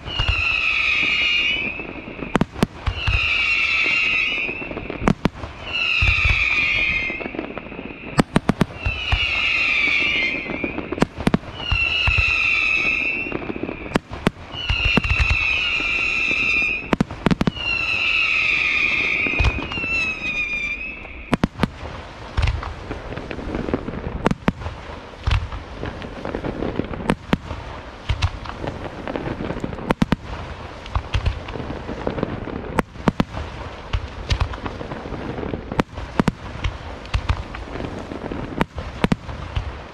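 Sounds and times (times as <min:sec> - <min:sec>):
whistling firework shells: 0:00.0 - 0:21.7
firework bangs: 0:00.0 - 0:39.9
firework crackling bursts: 0:00.0 - 0:39.9
low firework booms: 0:00.0 - 0:39.9.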